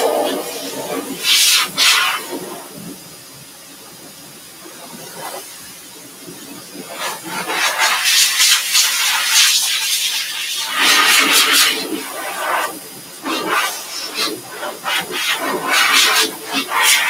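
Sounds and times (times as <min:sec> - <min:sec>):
dryer blowing air hissing: 0:00.0 - 0:17.0.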